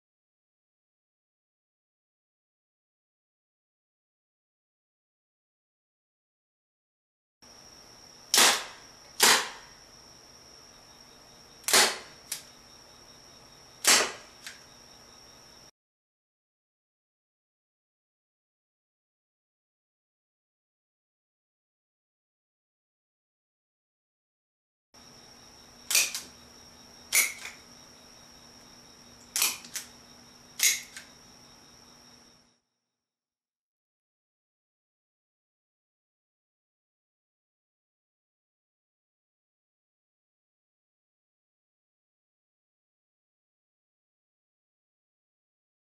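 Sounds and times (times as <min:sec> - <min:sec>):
rubber band gun snaps: 0:08.3 - 0:09.7, 0:11.6 - 0:12.5, 0:13.8 - 0:14.6, 0:25.9 - 0:26.3, 0:27.1 - 0:27.6, 0:29.3 - 0:29.9, 0:30.6 - 0:31.1.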